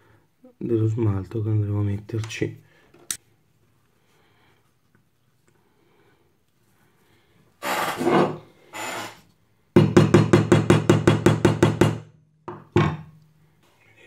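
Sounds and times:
screw scratching metal: 7.6 - 9.2.

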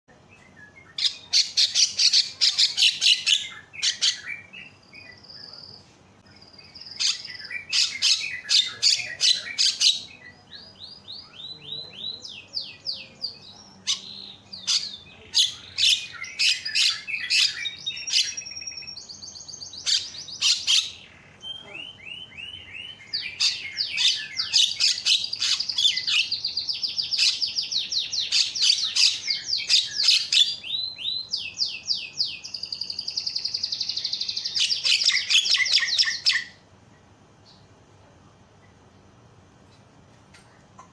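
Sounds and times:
bird harsh chattering: 0.9 - 4.6, 6.8 - 10.2, 11.4 - 18.9, 19.6 - 36.6.

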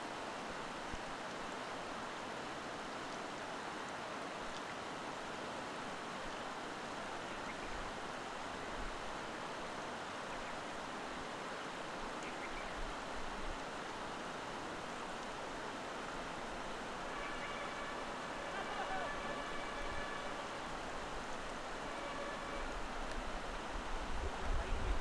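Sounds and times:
faint high ticks: 23.0 - 23.2.

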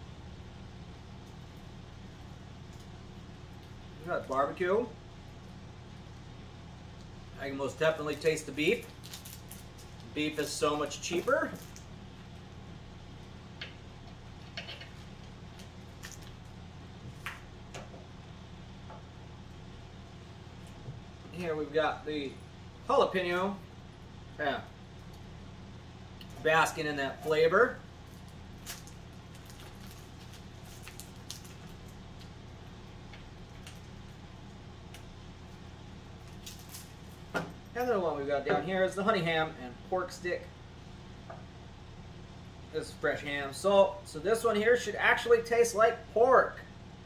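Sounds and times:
low room hum: 0.0 - 47.0
plastic wrappers crinkling: 8.2 - 11.9, 28.0 - 32.4, 36.2 - 37.2.

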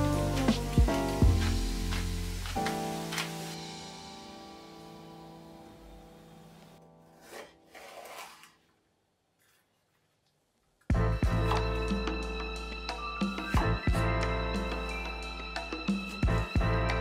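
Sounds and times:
background music chord: 10.9 - 17.0.

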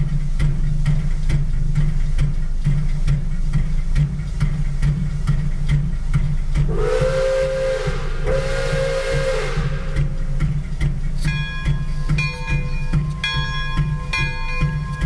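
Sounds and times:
low pulsing rumble: 0.0 - 15.0
steam hissing: 0.0 - 15.0
steam whistle blasts: 6.7 - 10.4.

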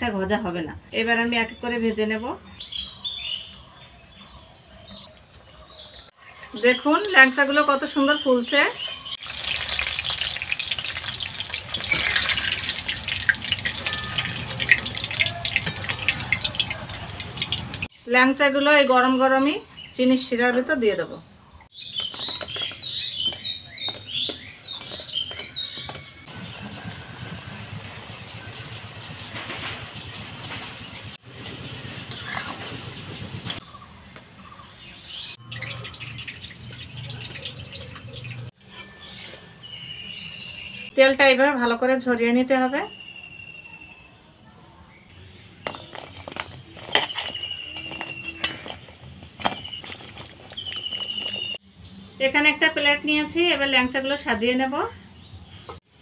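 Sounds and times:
bird chirping: 1.4 - 18.1, 21.2 - 26.8, 28.1 - 41.0, 42.6 - 52.2
dumplings sizzling in hot oil: 9.2 - 17.9, 35.5 - 38.5
metal spoon clinking on cookware: 9.3 - 17.7, 45.7 - 49.6.

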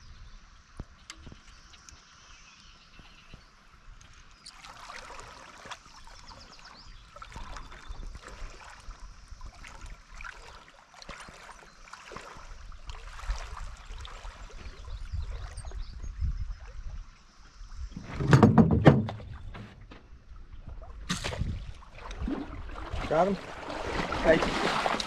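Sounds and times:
moving water rumble: 0.0 - 25.0
knocks and scrapes on canoe hull: 18.0 - 20.2.

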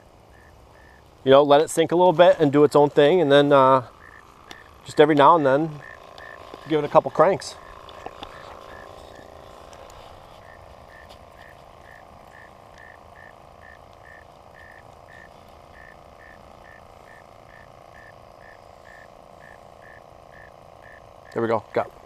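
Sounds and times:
faint frog chorus: 0.0 - 1.1, 3.6 - 7.0, 7.6 - 9.3, 10.4 - 21.4.

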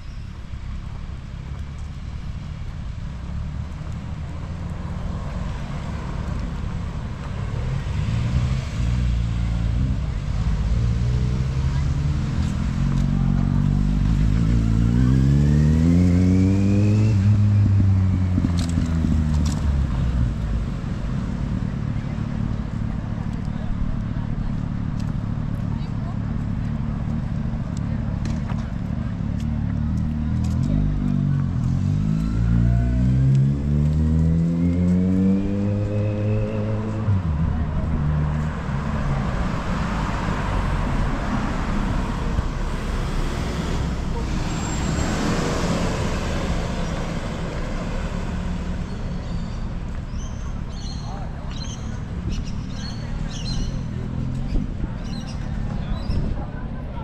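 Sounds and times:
low traffic rumble: 0.0 - 57.0
car engine accelerating past: 4.4 - 21.9, 29.7 - 50.9.

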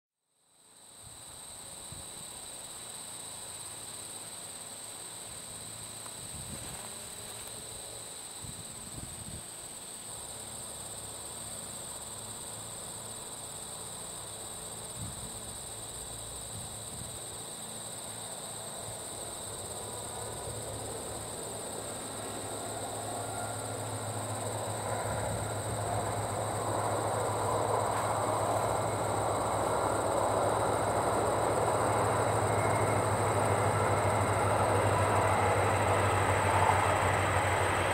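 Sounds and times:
diesel train engine rumble: 18.5 - 37.9.

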